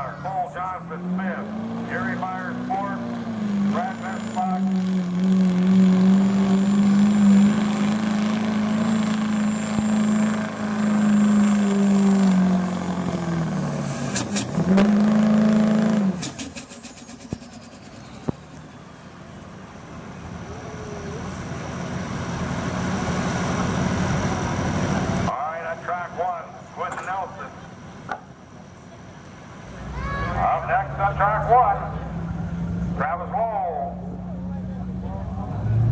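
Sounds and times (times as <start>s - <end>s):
diesel engine at full throttle: 0.0s - 35.9s.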